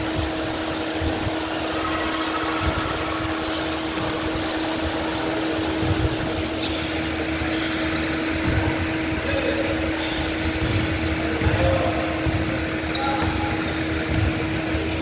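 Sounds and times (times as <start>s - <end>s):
ventilation fans humming: 0.0s - 15.0s
shoes squeaking on court: 0.1s - 14.7s
basketball thuds on wooden court: 10.5s - 12.5s, 13.2s - 14.4s.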